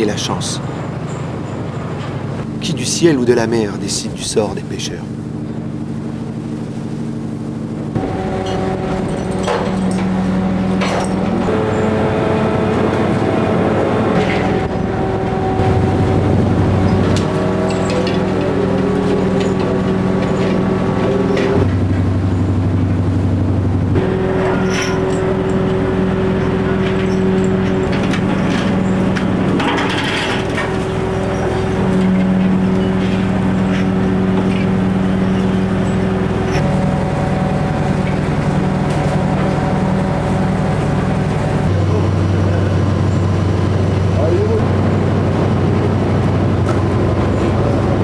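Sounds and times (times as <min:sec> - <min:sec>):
engine and machinery drone: 0:00.0 - 0:48.0
metal clanks: 0:08.0 - 0:23.0, 0:23.9 - 0:41.8.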